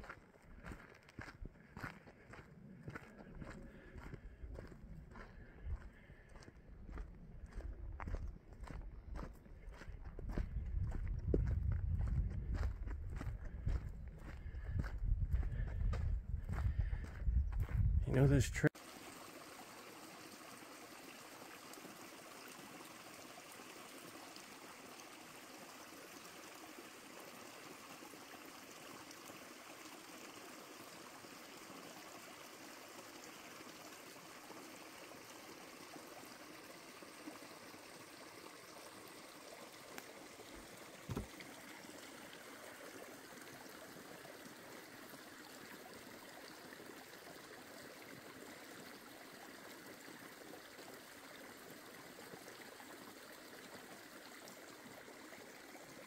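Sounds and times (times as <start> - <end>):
creek trickling over rocks: 0.0 - 56.0.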